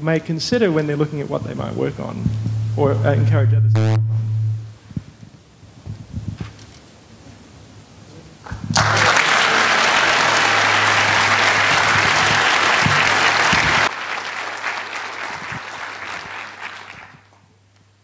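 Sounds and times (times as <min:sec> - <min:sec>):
audience applauding: 0:08.5 - 0:17.4.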